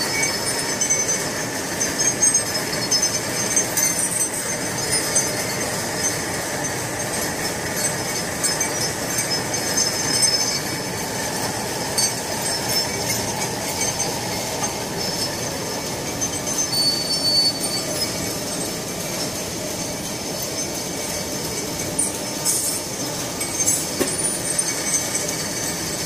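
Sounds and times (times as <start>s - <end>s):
high squealing tones: 0.0s - 20.8s
packing machine clattering: 0.0s - 26.0s.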